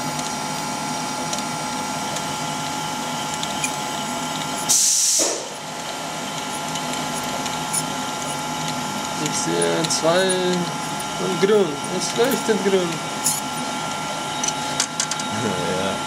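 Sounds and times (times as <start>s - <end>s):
machine hum with tones: 0.0s - 16.0s
loud short hiss: 4.7s - 5.6s.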